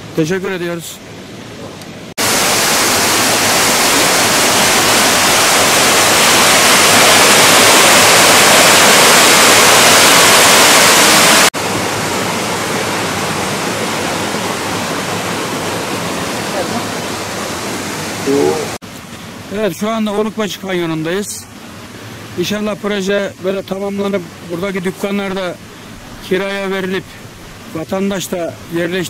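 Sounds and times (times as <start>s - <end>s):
water cascading over stone wall: 2.2s - 18.8s
small waterfall rushing: 2.2s - 29.0s.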